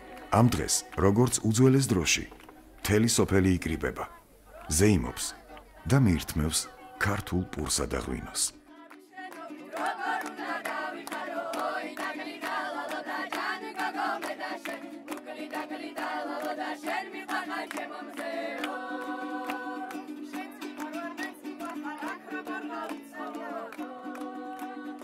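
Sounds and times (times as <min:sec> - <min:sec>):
voices singing: 0:00.0 - 0:25.0.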